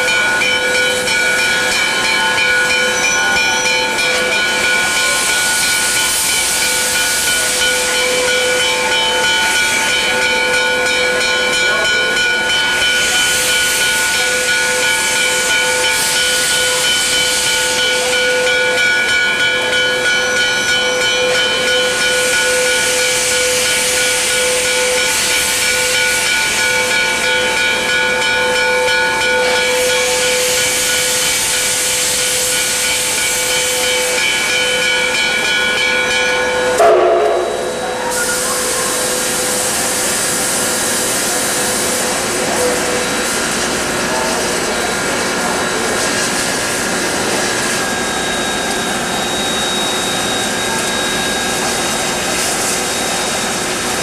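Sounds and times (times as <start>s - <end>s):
steam locomotive hissing: 0.0s - 54.0s
steady whistling tone: 36.8s - 40.4s, 45.5s - 54.0s.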